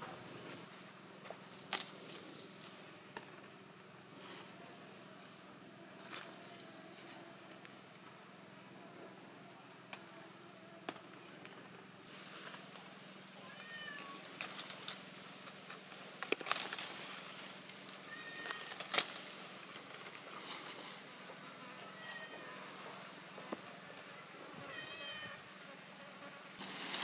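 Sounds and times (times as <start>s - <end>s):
leaves rustling: 0.0s - 3.4s, 11.8s - 27.0s
sharp snaps of fruit picking: 18.4s - 19.9s.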